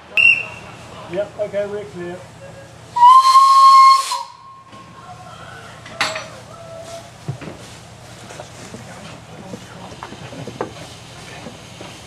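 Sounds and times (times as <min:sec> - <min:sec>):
steam locomotive whistle: 0:03.0 - 0:04.7.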